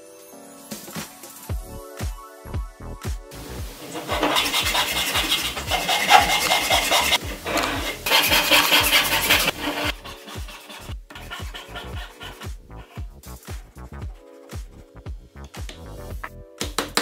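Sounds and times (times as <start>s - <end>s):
handsaw rasping through plywood: 3.9s - 12.5s.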